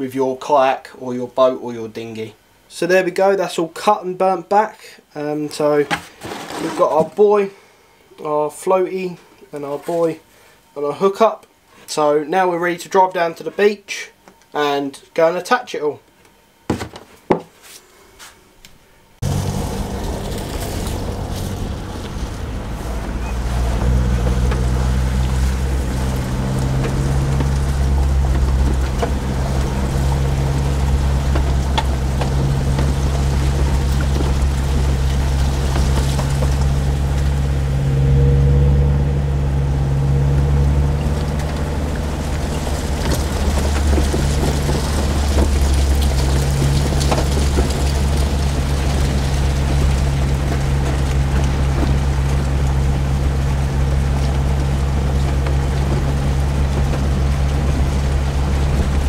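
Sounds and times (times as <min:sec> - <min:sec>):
tyres crackling over pebbles: 0:05.6 - 0:07.5, 0:19.2 - 0:37.7, 0:40.1 - 0:59.0
vehicle engine running: 0:19.2 - 0:59.0.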